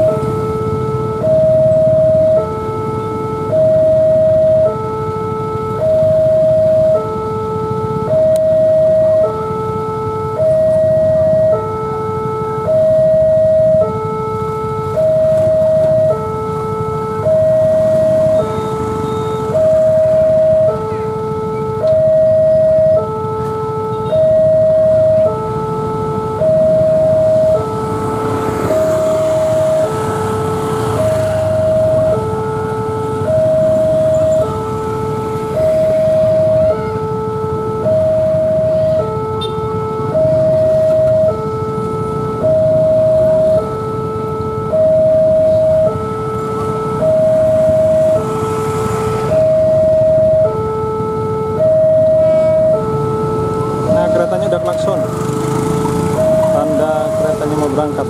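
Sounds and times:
two-tone level crossing alarm: 0.0 - 58.0.

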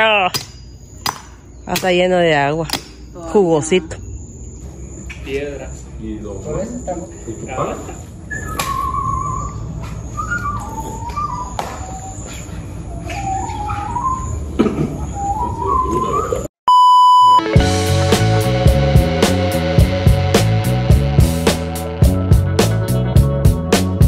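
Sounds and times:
whistle-like melody: 8.3 - 12.2, 13.2 - 14.5, 15.1 - 16.5
short pure beep: 16.7 - 17.6
music with beat and plucked guitar: 17.4 - 24.0.

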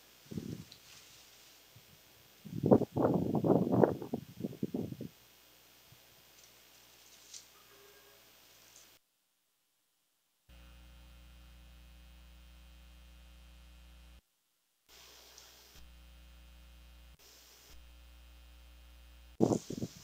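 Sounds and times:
faint electrical hum: 0.0 - 9.0, 10.5 - 14.2
faint rustles: 0.2 - 3.0, 5.9 - 9.0.

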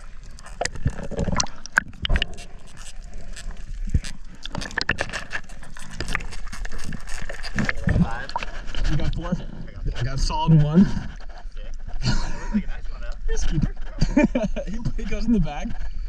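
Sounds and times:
water splashing and sloshing: 0.0 - 9.5.

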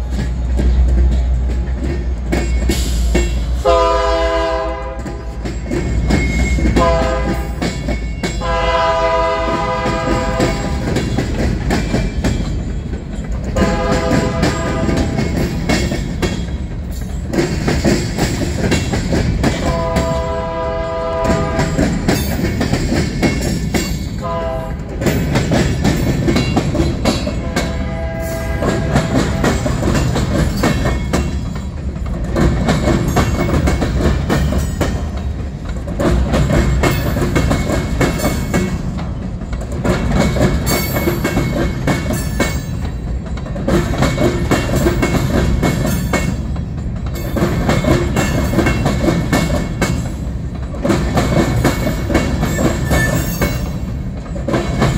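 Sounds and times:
freight train rumbling: 0.0 - 54.9
train wheels clacking: 0.0 - 54.9
locomotive air horn: 3.6 - 5.2, 6.8 - 7.6, 8.4 - 10.9, 13.6 - 15.3, 19.6 - 21.8, 24.2 - 24.9, 27.3 - 29.6.

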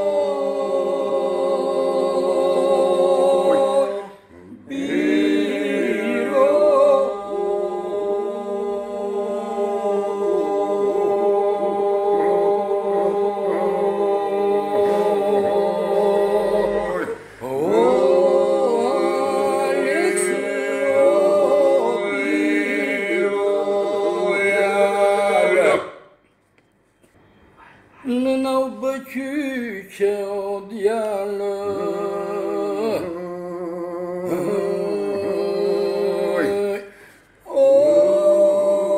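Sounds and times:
answering singing voice: 0.0 - 26.0
lead singing voice: 0.0 - 26.1, 28.0 - 38.9
group singing a held drone: 0.0 - 26.2, 30.7 - 38.9.

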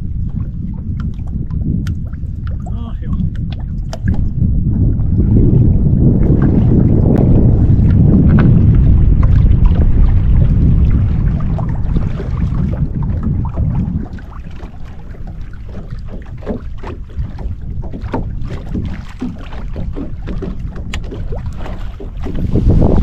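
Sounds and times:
wind rumble on microphone: 0.0 - 23.0.

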